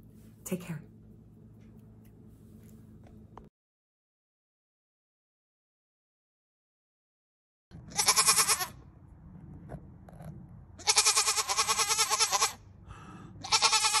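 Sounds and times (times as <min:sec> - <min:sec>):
goat bleating: 0:07.8 - 0:08.8, 0:10.8 - 0:12.6, 0:13.4 - 0:14.0.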